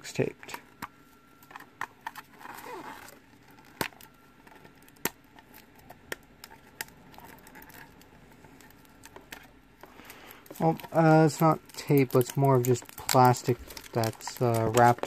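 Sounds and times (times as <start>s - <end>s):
plastic film rustling scrape: 2.0s - 15.0s
fingers tapping hard plastic: 10.5s - 15.0s.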